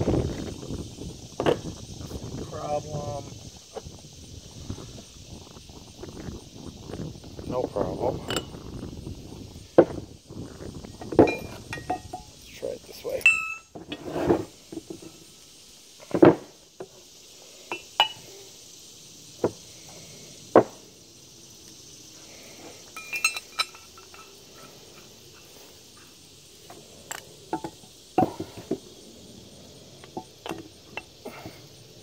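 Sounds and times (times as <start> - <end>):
metal tools clinking and knocking: 8.2 - 8.6, 11.0 - 13.8, 23.0 - 24.4.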